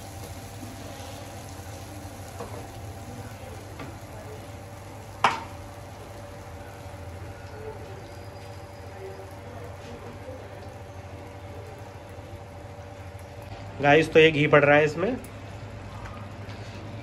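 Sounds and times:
paste sizzling in oil: 0:00.0 - 0:11.0.

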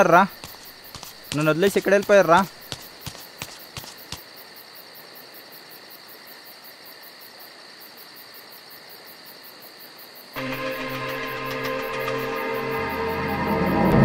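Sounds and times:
crickets chirping: 0:00.0 - 0:14.0
low ominous music chord: 0:10.4 - 0:14.0.

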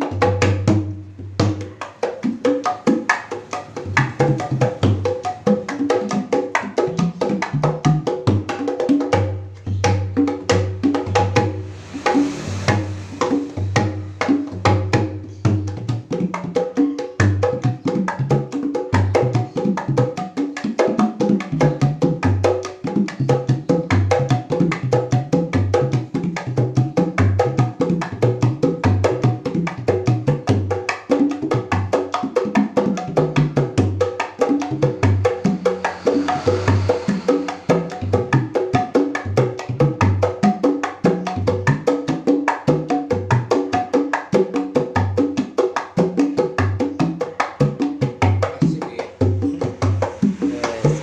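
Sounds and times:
hand drums deep strokes: 0:10.3 - 0:15.4, 0:34.5 - 0:38.9, 0:48.0 - 0:51.0.

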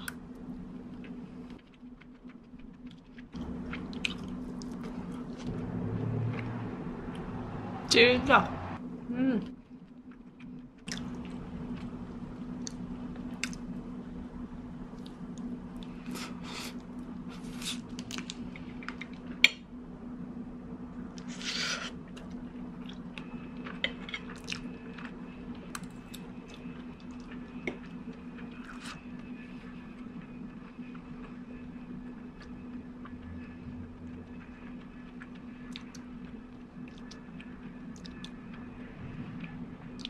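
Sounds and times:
low hum: 0:00.0 - 0:40.0
chewing and biting food: 0:34.3 - 0:38.7.

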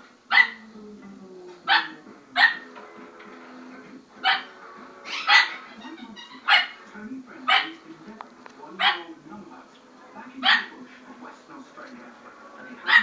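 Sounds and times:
macaw imitating dog barks: 0:00.3 - 0:00.6, 0:05.1 - 0:05.6, 0:06.2 - 0:06.8.

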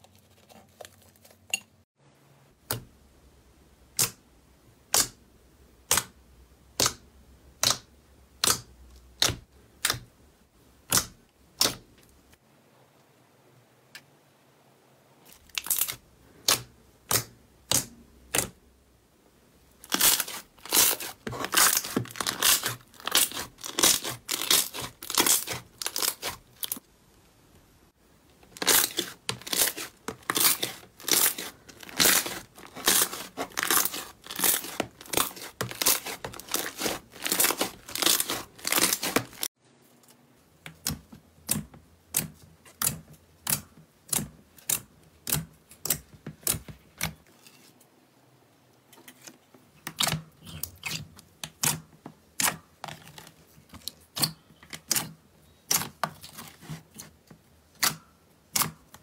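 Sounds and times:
slime popping and crackling: 0:19.8 - 0:26.8, 0:28.5 - 0:39.5.

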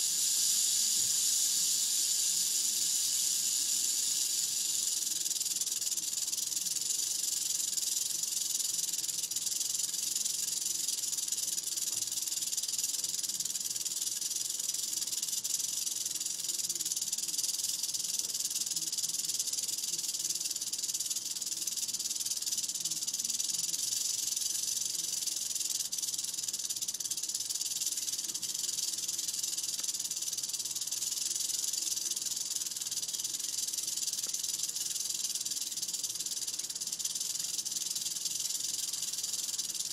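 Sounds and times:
rattlesnake tail rattle buzz: 0:00.0 - 0:39.9.

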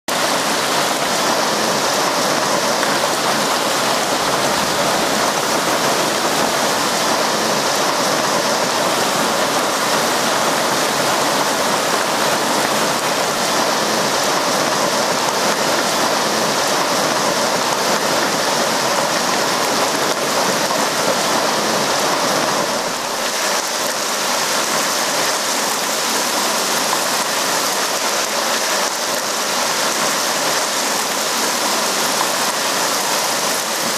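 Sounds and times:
heavy rain and hail: 0:00.1 - 0:33.9.

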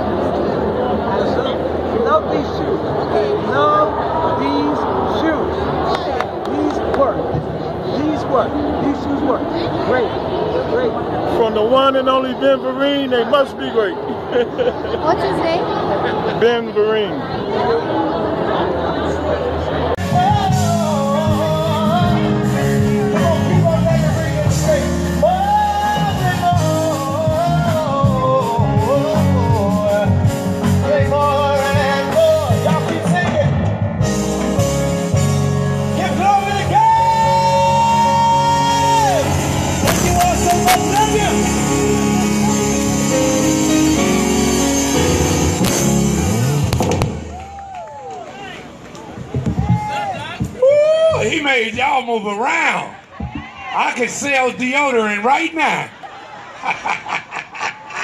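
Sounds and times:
crowd voices: 0:00.0 - 0:58.0
person singing: 0:20.0 - 0:32.9, 0:36.6 - 0:44.2
band accompaniment: 0:20.0 - 0:47.8, 0:48.6 - 0:51.8
drum hits: 0:39.8 - 0:41.5, 0:45.5 - 0:47.4, 0:49.1 - 0:50.6.

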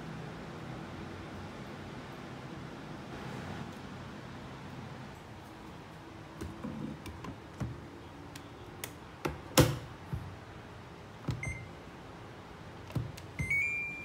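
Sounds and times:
short beep: 0:13.4 - 0:14.0.

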